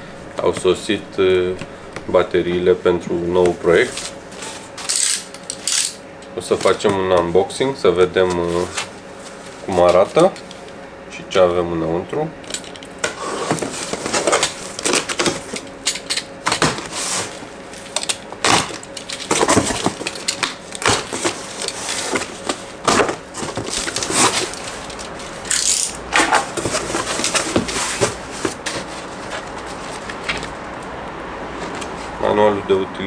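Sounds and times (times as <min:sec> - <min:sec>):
knife slitting packing tape: 0:04.8 - 0:06.0, 0:13.3 - 0:28.2
cardboard and paper rustling: 0:08.0 - 0:10.5, 0:12.6 - 0:25.5, 0:26.2 - 0:30.6.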